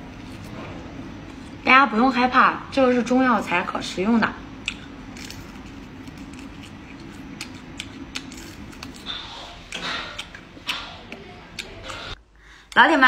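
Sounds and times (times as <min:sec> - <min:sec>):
low steady hum: 0:00.0 - 0:13.0
crunchy food being chewed: 0:04.6 - 0:12.2.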